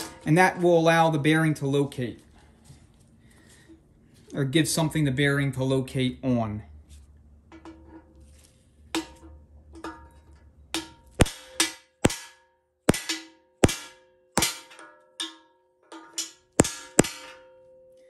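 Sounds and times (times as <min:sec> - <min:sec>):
hammer striking steel: 0:10.7 - 0:18.0.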